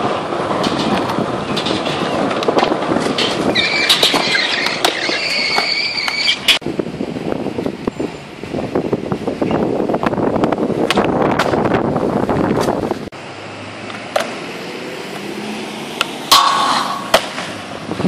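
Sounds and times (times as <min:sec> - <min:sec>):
skateboard clacks: 0:00.0 - 0:06.6, 0:13.9 - 0:14.3, 0:16.3 - 0:17.6
skateboard wheels rolling on concrete: 0:00.0 - 0:18.0
high steady squeal: 0:03.4 - 0:06.6.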